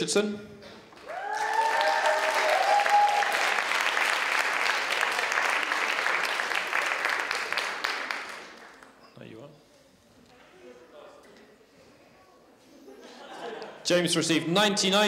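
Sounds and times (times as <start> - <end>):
people cheering: 1.0 - 8.4
audience applauding: 1.0 - 9.0.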